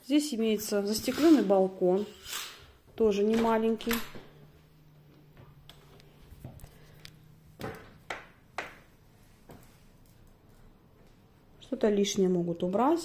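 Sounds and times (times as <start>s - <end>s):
faint steady hum: 2.6s - 13.0s.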